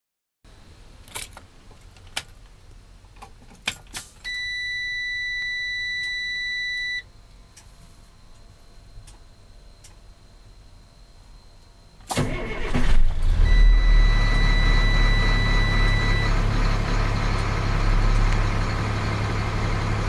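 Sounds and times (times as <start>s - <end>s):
keys rattling in ignition: 1.0s - 2.3s
dash warning buzzer beep: 4.2s - 7.1s, 13.3s - 16.4s.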